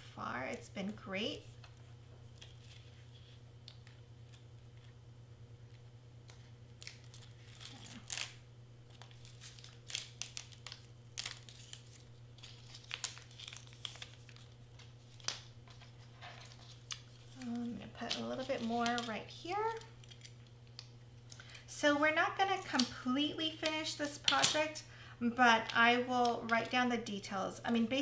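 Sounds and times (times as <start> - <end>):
tape peeling and paper crinkling: 0.8 - 5.0, 5.6 - 21.6.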